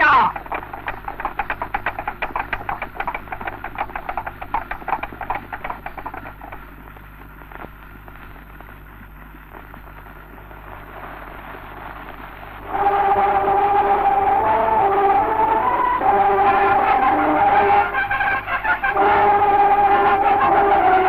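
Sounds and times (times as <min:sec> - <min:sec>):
film soundtrack hiss and hum: 0:00.0 - 0:21.0
horses' hooves on road: 0:00.4 - 0:06.7.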